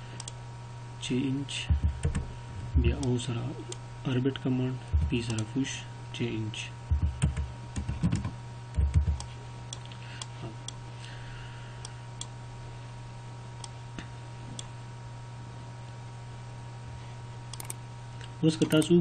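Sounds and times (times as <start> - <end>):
low electrical hum: 0.0 - 19.0
computer mouse clicks: 17.6 - 17.8.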